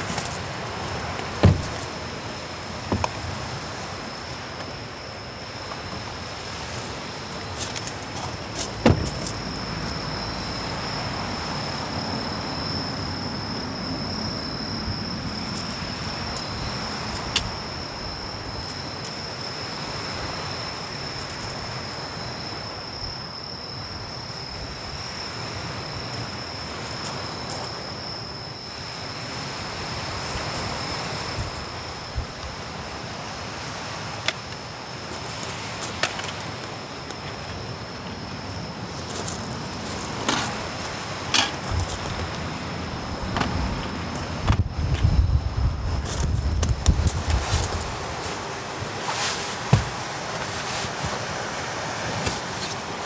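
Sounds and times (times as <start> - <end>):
background hiss: 0.0 - 53.0
night insects trilling: 0.0 - 53.0
sharp thump: 1.4 - 1.8, 8.8 - 9.3.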